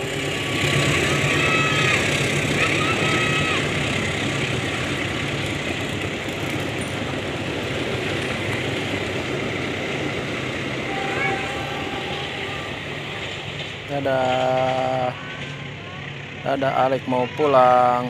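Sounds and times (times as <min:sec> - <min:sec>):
electric train passing: 0:00.0 - 0:18.0
thin high tone: 0:10.8 - 0:13.2.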